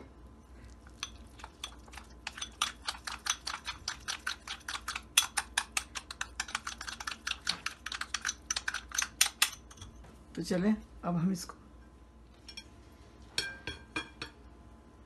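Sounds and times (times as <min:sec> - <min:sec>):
metal spoon clinking in a bowl: 0:01.0 - 0:09.9.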